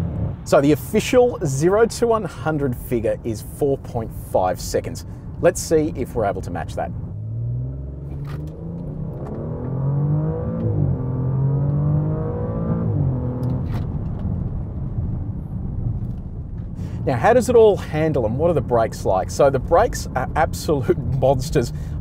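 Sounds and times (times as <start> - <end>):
car engine accelerating hard: 7.0 - 15.2.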